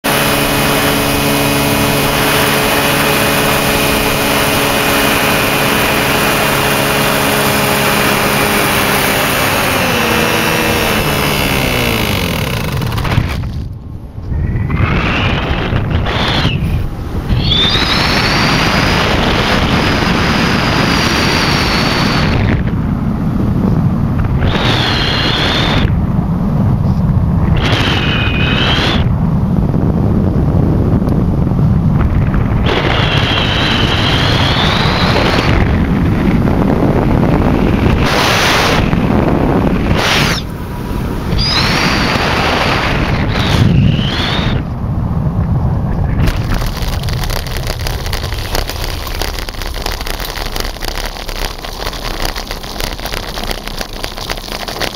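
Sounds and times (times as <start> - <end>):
wind rushing over microphone: 0.0 - 54.9
high whistle: 16.0 - 18.7, 24.5 - 25.9, 32.8 - 35.4, 41.3 - 42.3, 43.2 - 44.7.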